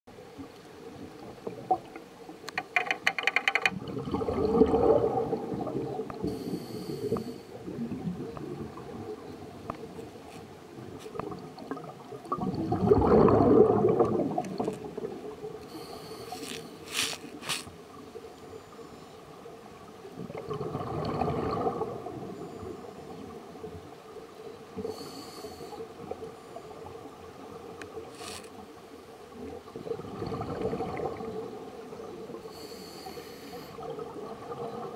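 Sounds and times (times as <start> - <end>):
bubbling regulator exhalations: 3.8 - 9.0, 11.7 - 15.2.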